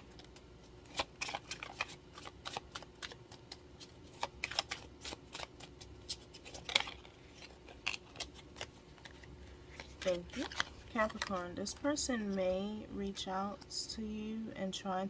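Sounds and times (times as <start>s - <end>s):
cards being shuffled: 0.0s - 12.5s
faint steady hum: 0.0s - 15.0s.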